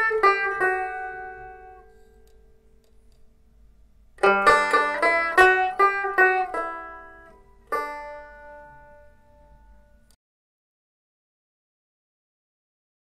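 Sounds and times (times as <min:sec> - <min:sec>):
picked string notes: 0:00.0 - 0:03.3, 0:04.2 - 0:10.2.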